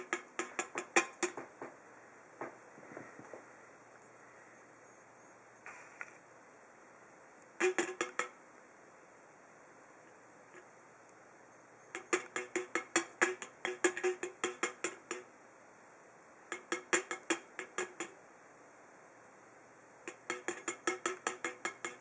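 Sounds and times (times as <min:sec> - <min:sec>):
beak tapping metal can tab: 0:00.0 - 0:01.7, 0:07.6 - 0:08.4, 0:11.9 - 0:15.3, 0:16.5 - 0:18.2, 0:20.0 - 0:22.0.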